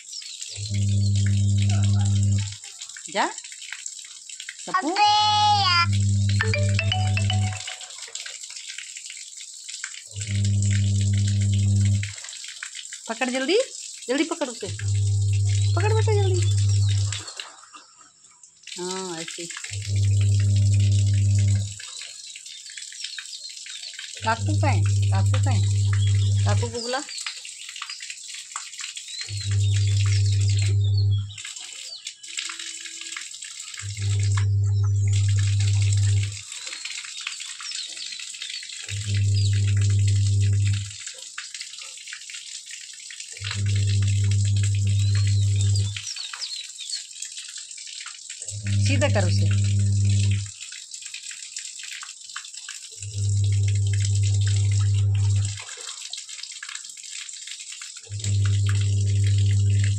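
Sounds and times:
steady low hum: 0:00.6 - 0:02.5, 0:14.7 - 0:17.2, 0:19.8 - 0:21.7, 0:24.2 - 0:26.7, 0:29.4 - 0:31.3, 0:38.9 - 0:40.9, 0:48.6 - 0:50.5, 0:53.1 - 0:55.6, 0:58.2 - 0:59.9
dog lapping at water: 0:00.6 - 0:06.4, 0:07.8 - 0:18.0, 0:51.9 - 0:59.9
water splashing into plastic bucket: 0:18.6 - 0:59.9.

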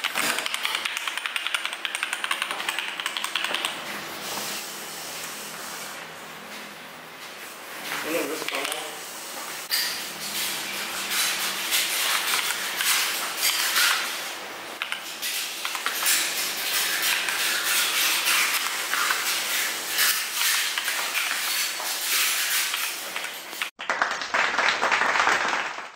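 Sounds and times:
mechanical keyboard clacking: 0:00.0 - 0:03.8.

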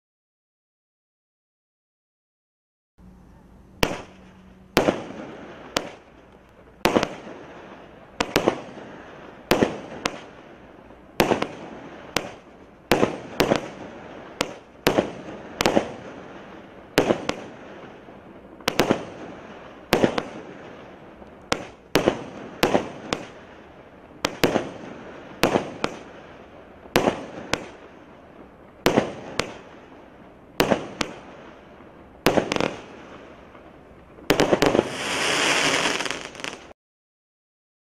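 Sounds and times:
firework shots firing: 0:03.8 - 0:10.5, 0:11.1 - 0:18.0, 0:18.6 - 0:23.6, 0:24.2 - 0:36.7
firework burst hiss: 0:34.3 - 0:36.8.

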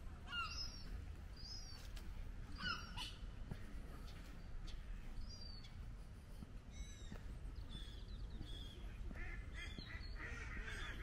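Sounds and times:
steady low rumble: 0:00.0 - 0:11.0
waterfowl calling: 0:08.5 - 0:11.0.

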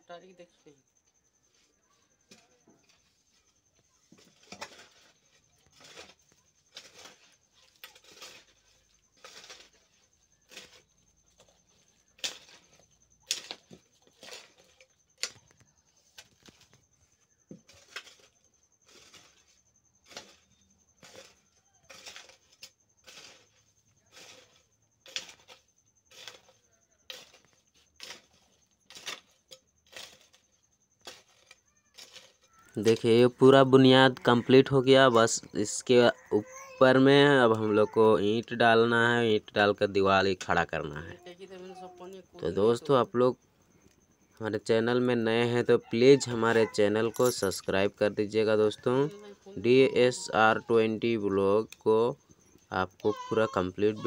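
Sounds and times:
hoe scraping earth and stones: 0:01.4 - 0:35.6, 0:45.8 - 0:50.5.

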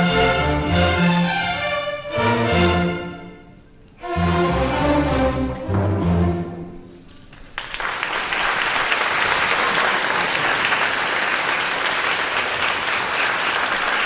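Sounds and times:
string orchestra chord: 0:00.0 - 0:06.8
audience applause: 0:07.2 - 0:14.0.

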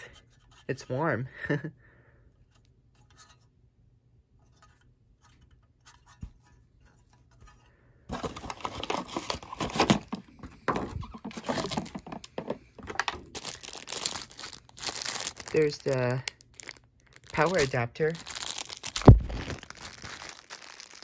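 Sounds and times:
plastic bag crinkling: 0:08.1 - 0:10.2, 0:11.2 - 0:21.0.

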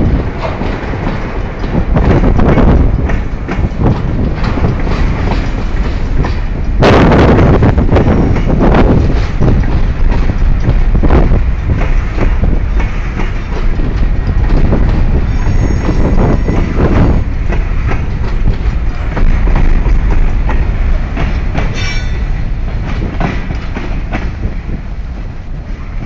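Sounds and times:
freight train rumbling: 0:00.0 - 0:26.0
wheels clacking over rail joints: 0:00.0 - 0:26.0
high wheel squeal: 0:15.1 - 0:17.2.

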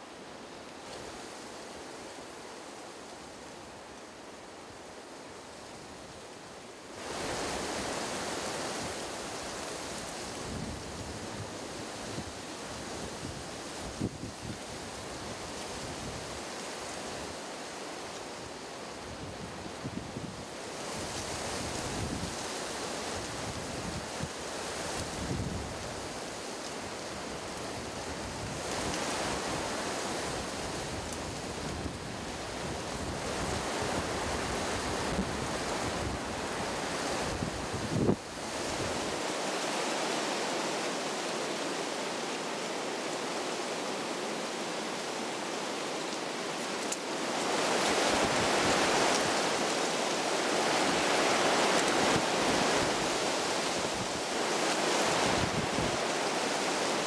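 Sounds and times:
wind rushing through leaves: 0:00.0 - 0:57.0.

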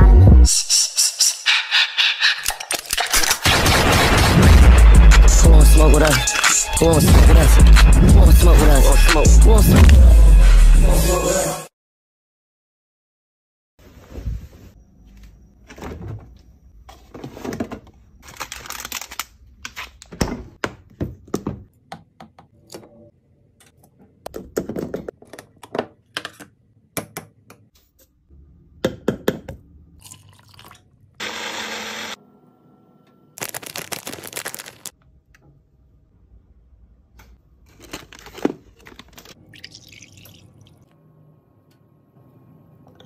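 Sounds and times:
liquid pouring: 0:30.0 - 0:30.8, 0:39.4 - 0:40.9.

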